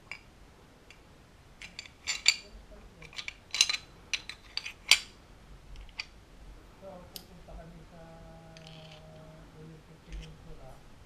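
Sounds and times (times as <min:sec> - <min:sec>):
metal gun parts clicking: 0:01.6 - 0:05.1, 0:08.6 - 0:09.1.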